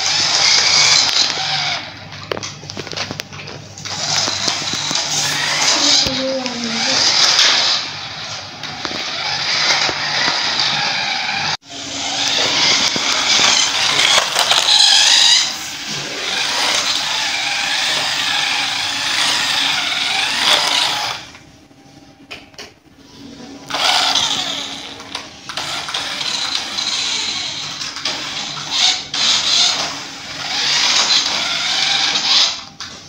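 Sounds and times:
toy car motors whining: 0.0 - 3.2, 3.8 - 21.4, 23.7 - 33.0.

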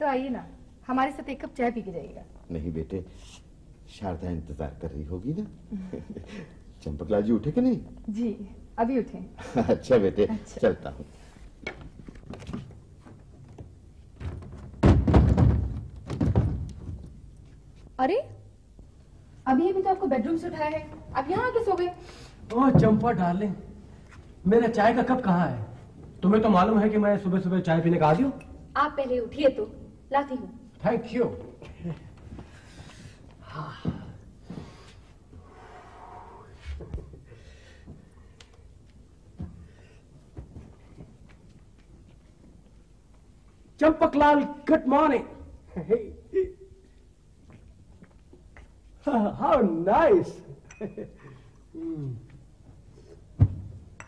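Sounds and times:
heavy thuds of wooden door: 14.2 - 17.0.

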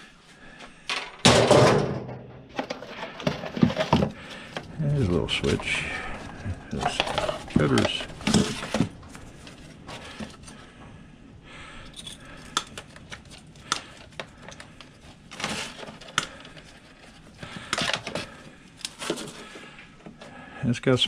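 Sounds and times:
plastic scraping: 2.5 - 10.7, 12.4 - 20.3
tools and plastic parts clicking: 6.7 - 10.5, 11.8 - 19.4.

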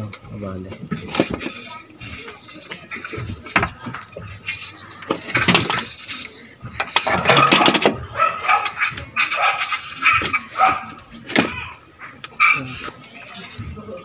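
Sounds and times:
animal calling: 7.1 - 13.7.

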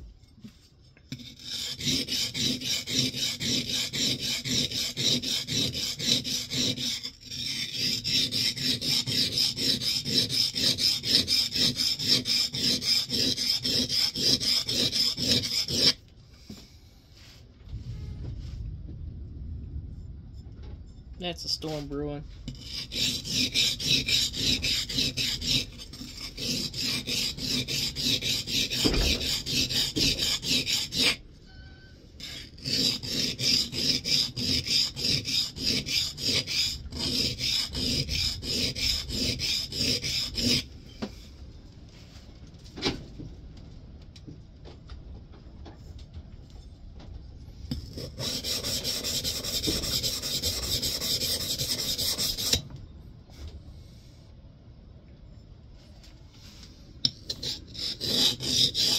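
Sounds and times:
plane iron scraping on sharpening stone: 1.1 - 16.0, 22.5 - 31.2, 32.2 - 40.7, 47.9 - 52.6, 57.1 - 58.9.

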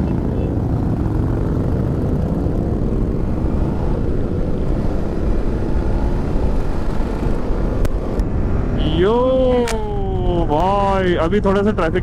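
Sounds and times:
other motorcycles pulling away: 0.0 - 8.8
motorcycle engine accelerating: 0.0 - 10.8.

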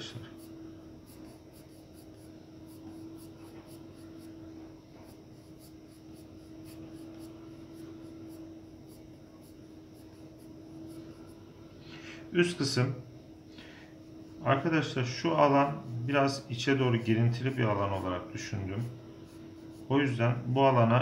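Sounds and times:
steady low hum: 0.0 - 21.0
pencil scratching on paper: 0.2 - 11.4, 15.6 - 20.2.

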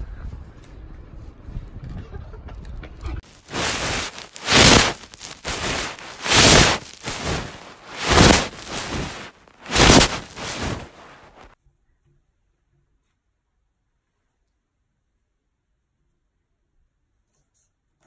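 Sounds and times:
blanket fabric rustling: 3.3 - 11.5.

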